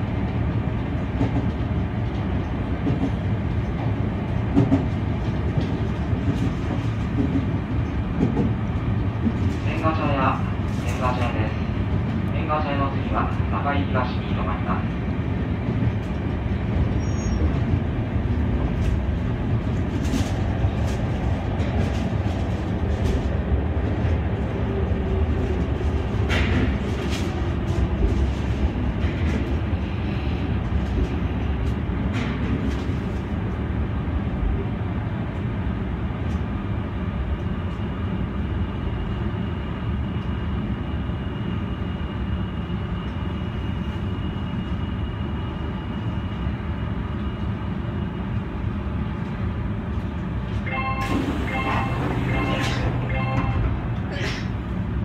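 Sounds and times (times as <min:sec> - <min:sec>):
train wheels rumbling on rail: 0:00.0 - 0:55.0
faint high tone: 0:50.7 - 0:53.7.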